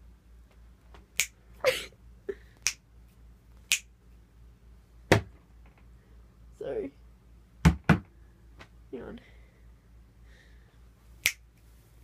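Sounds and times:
finger snaps: 1.2 - 1.4, 2.6 - 2.8, 3.6 - 3.9, 11.2 - 11.5.

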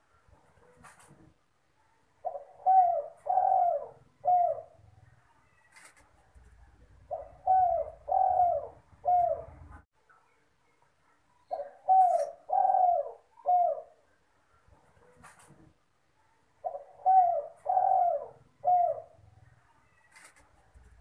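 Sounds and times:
dove cooing: 2.2 - 4.9, 7.0 - 9.8, 11.5 - 14.0, 16.6 - 19.3.

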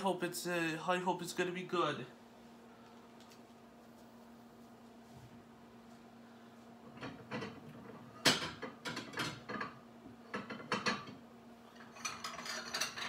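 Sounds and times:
kitchenware clattering and rattling: 6.9 - 13.0.

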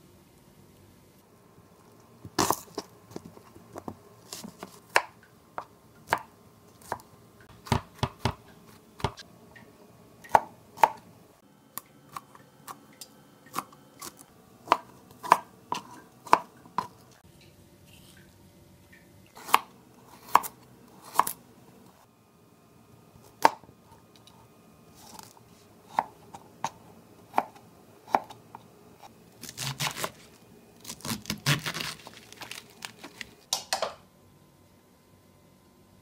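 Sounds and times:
knife chopping on cutting board: 6.9 - 8.4, 9.0 - 9.2, 13.6 - 16.9, 19.4 - 21.4, 25.9 - 28.4, 29.5 - 30.2.

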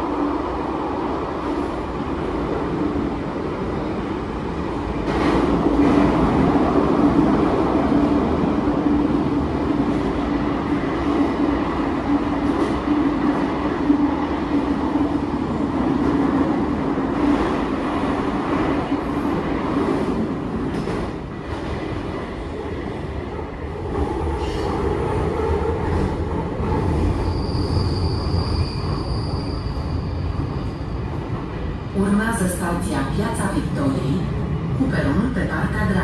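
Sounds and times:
high wheel squeal: 27.1 - 31.1.

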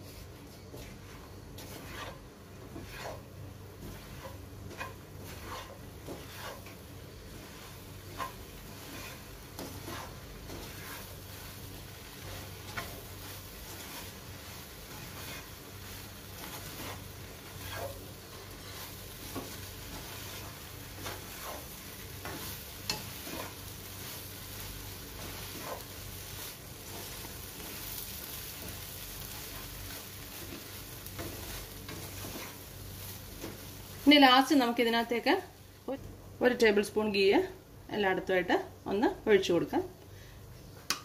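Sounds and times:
light sizzle in pan: 0.0 - 37.6
utensil scraping and tapping pan: 0.7 - 6.8, 7.6 - 11.2, 16.4 - 23.7.

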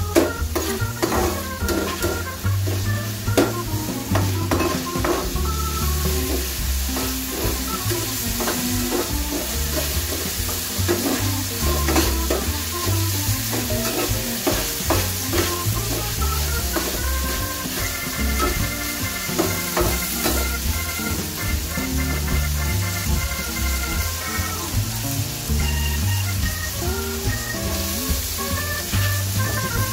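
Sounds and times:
vegetables sizzling in a frying pan: 0.0 - 29.9
metal spatula scraping a pan: 0.1 - 5.4, 6.2 - 12.5, 13.4 - 21.4.

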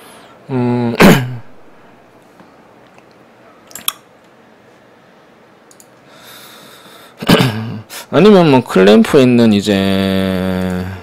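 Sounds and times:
man humming: 0.4 - 1.5, 10.1 - 11.0.

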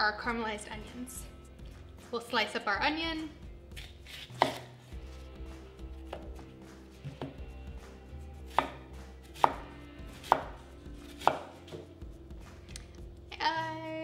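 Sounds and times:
knife knocking on wooden board: 7.1 - 7.4.

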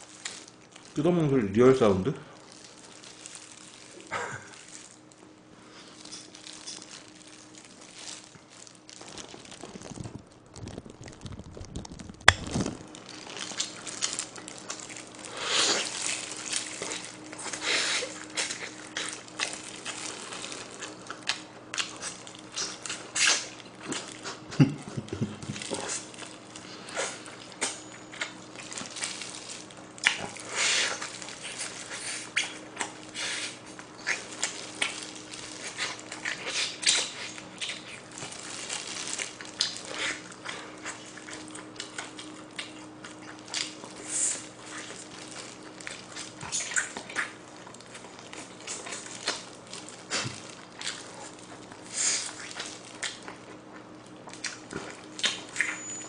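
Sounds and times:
person gnawing and tearing meat: 0.0 - 1.2, 1.8 - 56.0
wet lip-smacking and chewing: 13.5 - 29.2, 30.0 - 38.6, 39.3 - 55.9.

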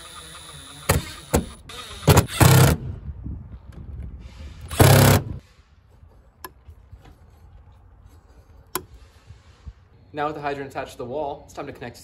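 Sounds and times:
cordless drill driving screw: 0.0 - 2.7, 4.7 - 5.4.

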